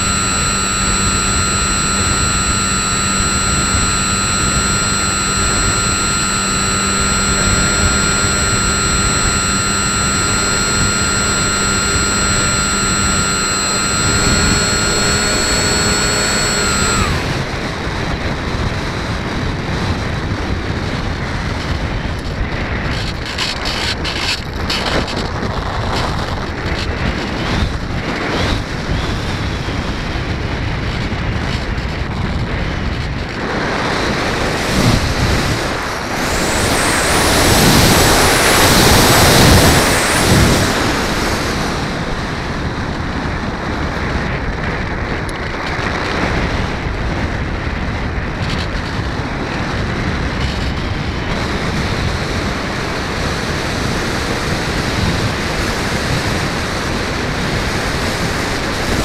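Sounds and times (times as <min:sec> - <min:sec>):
faint high whine: 0:00.0 - 0:18.0, 0:33.2 - 0:44.6.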